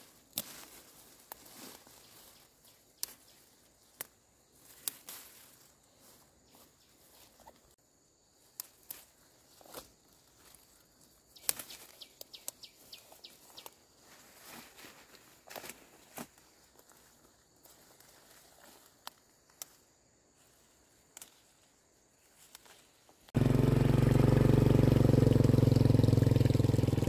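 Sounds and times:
leaves rustling: 0.0 - 27.0
fern stems snapping: 0.2 - 1.9, 2.9 - 5.3, 8.5 - 9.9, 11.4 - 12.6, 18.8 - 19.8, 21.1 - 21.5.

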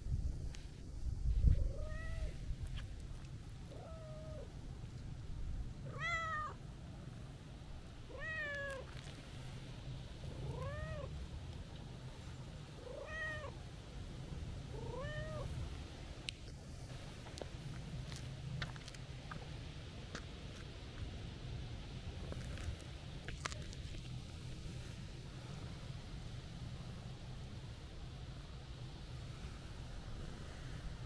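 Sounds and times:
cat meowing: 1.6 - 2.4, 3.7 - 4.5, 5.9 - 6.6, 8.1 - 8.9, 10.4 - 11.1, 12.9 - 13.6, 14.8 - 15.5.

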